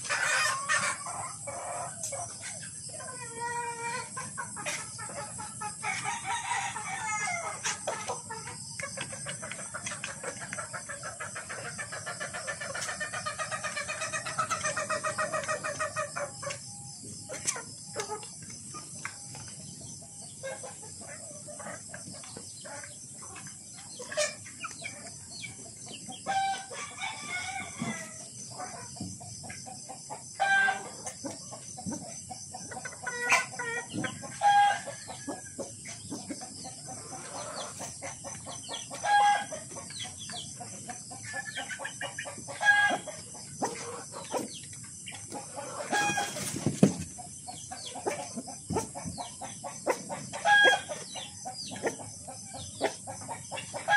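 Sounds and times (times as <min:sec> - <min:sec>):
chickens clucking: 0:00.0 - 0:53.9
rooster crowing: 0:06.0 - 0:07.5.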